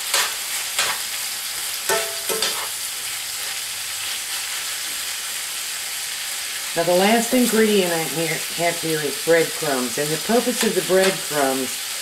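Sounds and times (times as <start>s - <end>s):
metal spoon scraping a pan: 0.0s - 1.1s, 1.9s - 2.8s
filling sizzling in a skillet: 0.0s - 12.0s.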